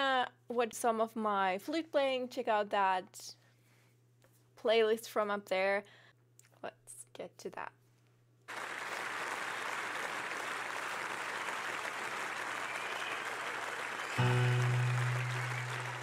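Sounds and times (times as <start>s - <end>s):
audience applauding: 8.5s - 16.0s
low sustained band note: 14.2s - 16.0s.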